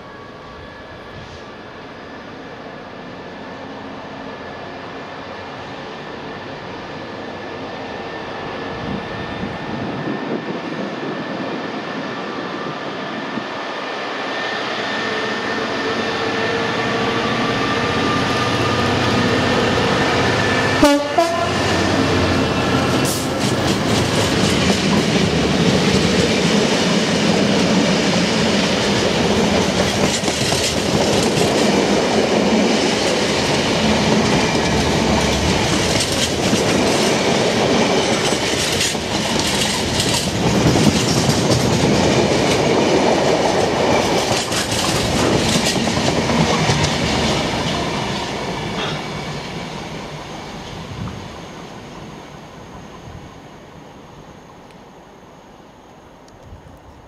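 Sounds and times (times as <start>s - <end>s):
diesel locomotive engine passing: 0.0s - 57.0s
freight wagon wheels clickety-clack: 29.2s - 31.8s, 33.9s - 47.8s.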